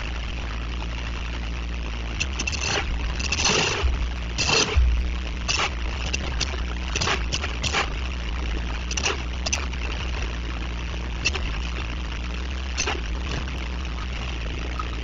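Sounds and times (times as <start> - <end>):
low hum: 0.0 - 15.0
short scrapes or clicks: 2.2 - 4.8, 5.5 - 7.9.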